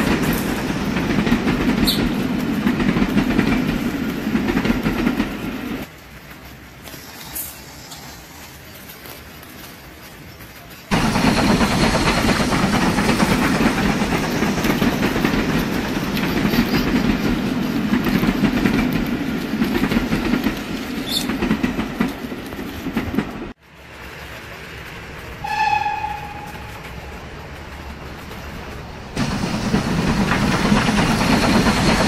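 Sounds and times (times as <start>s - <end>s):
model train cars rumbling: 0.0s - 32.0s
short horn toot: 25.4s - 26.8s.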